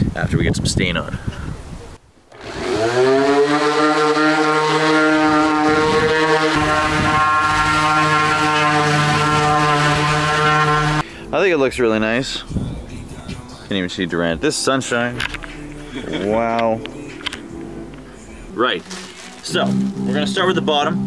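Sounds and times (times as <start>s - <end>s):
orbital sander whining: 2.3s - 11.0s.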